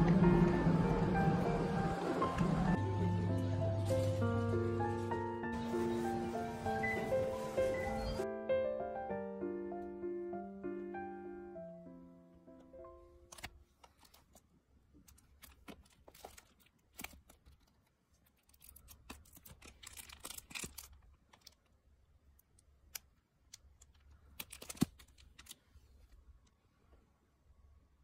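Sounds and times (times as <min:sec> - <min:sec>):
plastic wrap crinkling: 0:03.8 - 0:08.2, 0:15.1 - 0:21.8.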